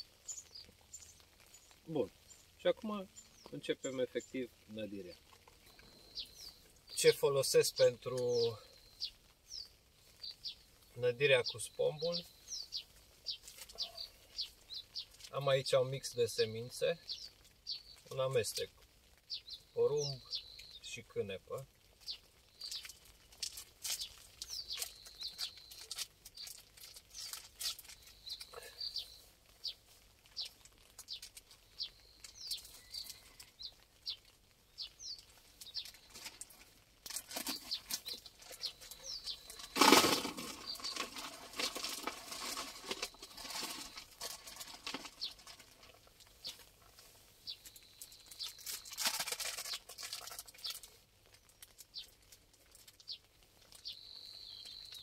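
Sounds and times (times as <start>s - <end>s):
small birds chirping: 0.0s - 55.0s
bait packets crinkling: 21.6s - 55.0s.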